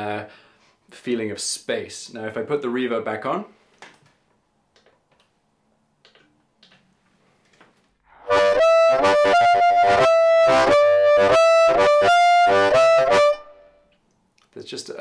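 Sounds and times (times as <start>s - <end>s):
harmonica with reverb: 8.1s - 13.8s.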